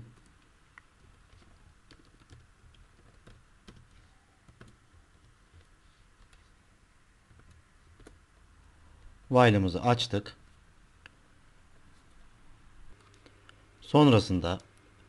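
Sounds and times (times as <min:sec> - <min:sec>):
faint keyboard typing: 0:00.0 - 0:06.6, 0:07.2 - 0:09.2, 0:12.9 - 0:13.6, 0:14.4 - 0:15.0.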